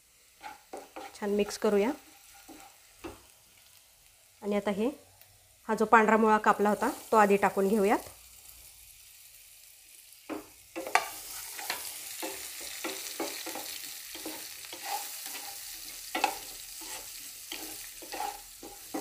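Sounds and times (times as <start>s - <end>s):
food sizzling in oil: 0.0s - 19.0s
wooden spatula scraping pan: 0.4s - 3.2s, 10.8s - 19.0s.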